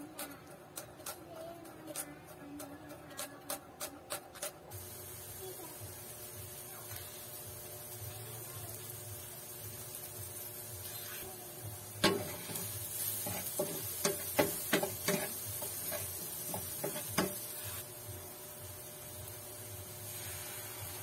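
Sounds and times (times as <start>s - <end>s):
faint sizzle: 4.6s - 21.0s
spatula scraping frying pan: 10.8s - 11.4s, 12.0s - 17.9s.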